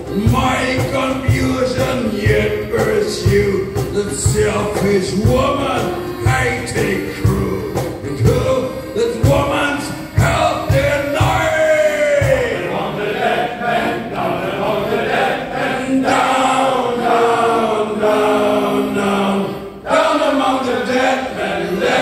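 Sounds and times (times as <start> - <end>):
men's choir singing: 0.0 - 22.0.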